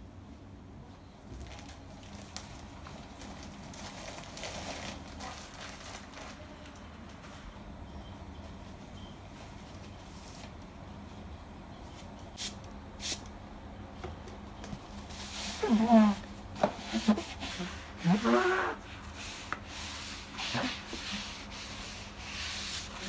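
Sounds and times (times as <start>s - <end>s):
sponge rubbing on tile: 15.3s - 23.0s
sponge squeaking on tile: 15.6s - 18.9s.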